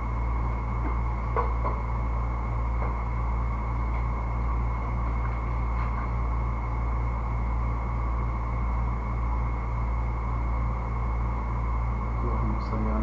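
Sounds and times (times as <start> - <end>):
steady low hum: 0.0 - 13.0
thin high whine: 0.0 - 13.0.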